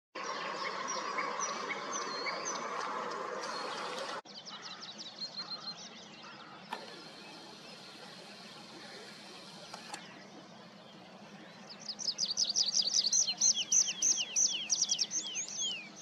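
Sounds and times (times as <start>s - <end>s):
songbirds singing: 0.2s - 16.0s.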